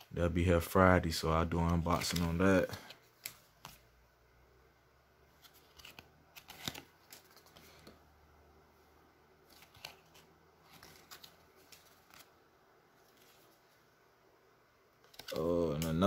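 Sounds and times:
trading cards rustling and clicking: 0:01.3 - 0:03.9, 0:05.3 - 0:08.0, 0:09.4 - 0:13.8, 0:15.0 - 0:16.0.

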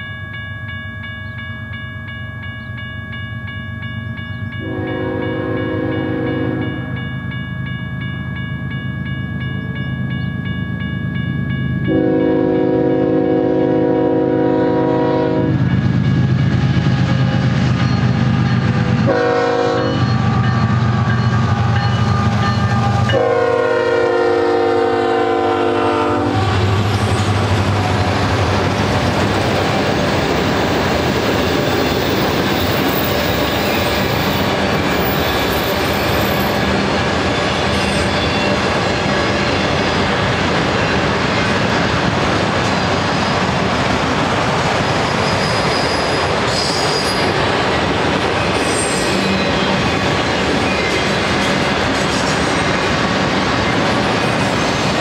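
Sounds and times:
diesel locomotive engine drone: 0:00.0 - 0:55.0
locomotive air horn blasts: 0:04.6 - 0:06.8, 0:11.9 - 0:15.6, 0:19.0 - 0:26.7.

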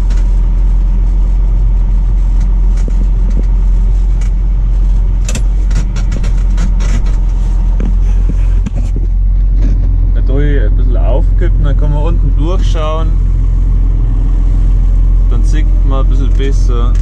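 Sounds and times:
tractor engine rumbling: 0:00.0 - 0:17.0
sharp clicks and knocks: 0:02.4 - 0:04.4, 0:05.2 - 0:10.0.

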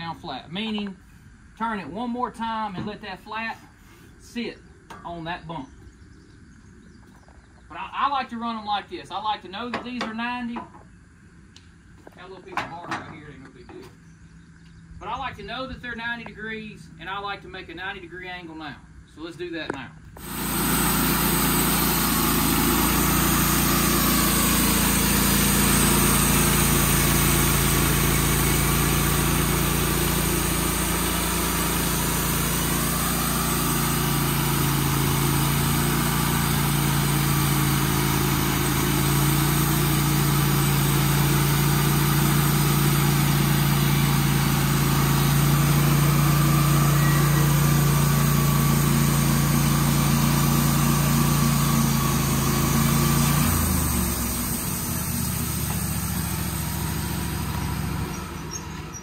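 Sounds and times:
sawmill engine running: 0:20.1 - 0:59.0.

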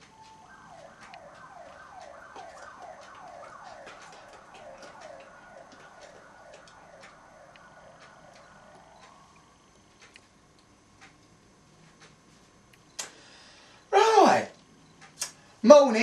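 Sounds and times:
faint siren-like wail: 0:00.0 - 0:10.2.

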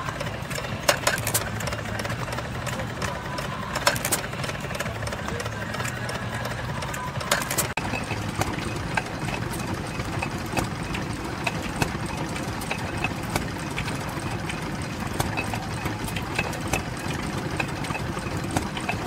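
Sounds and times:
stationary engine running: 0:00.0 - 0:19.0
sharp engine knocks: 0:07.2 - 0:19.0.

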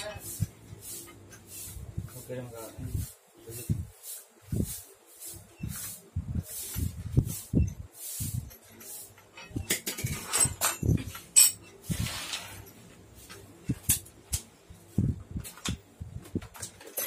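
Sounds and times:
small metal parts clinking: 0:08.5 - 0:12.8.

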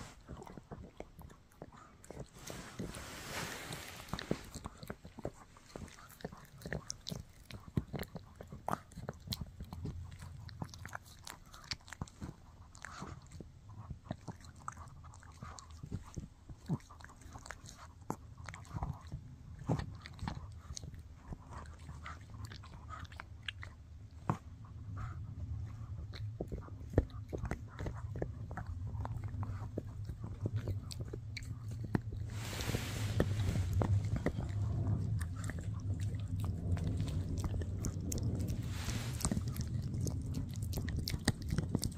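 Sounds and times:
dog chewing crunching bites: 0:00.1 - 0:03.0, 0:03.9 - 0:24.4, 0:33.2 - 0:41.9.

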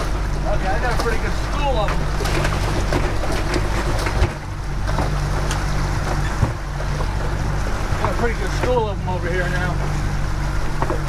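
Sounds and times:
outboard motor running: 0:00.0 - 0:11.0
wind and water rushing: 0:00.0 - 0:11.0.

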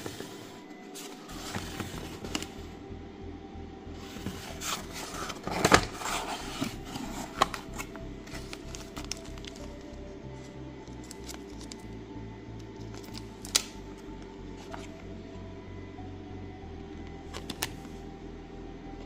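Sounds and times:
cardboard scraping and rustling: 0:00.0 - 0:02.6, 0:04.0 - 0:09.6
background music with steady beat: 0:00.0 - 0:19.0.

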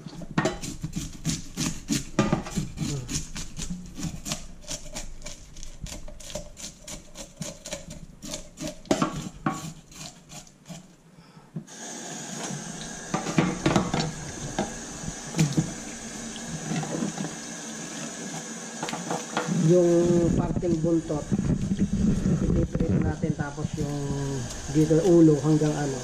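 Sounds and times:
knife scraping fish scales: 0:00.1 - 0:11.0
tap water running into sink: 0:12.1 - 0:22.4, 0:23.8 - 0:26.0
knocks of rinsing: 0:12.4 - 0:22.5.

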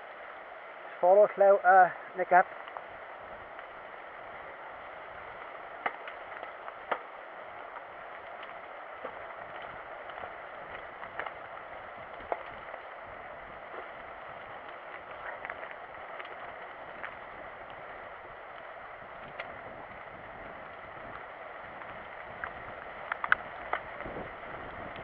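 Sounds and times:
bike tyres rolling on dirt: 0:00.0 - 0:25.0
bike clicking and knocking: 0:05.7 - 0:12.8, 0:19.2 - 0:25.0.

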